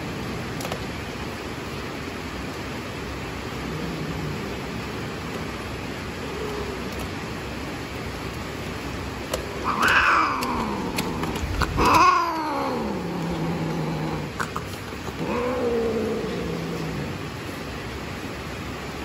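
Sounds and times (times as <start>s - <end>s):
cat yowling: 9.5s - 14.4s, 15.1s - 17.2s.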